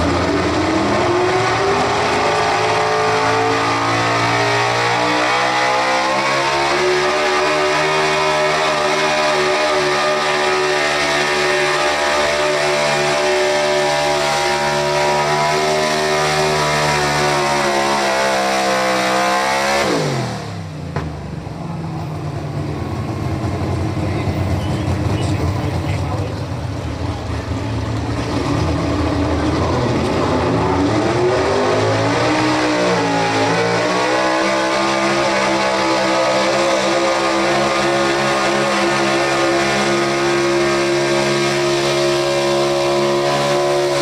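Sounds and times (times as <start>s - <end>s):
truck engine at high revs: 0.0s - 44.0s.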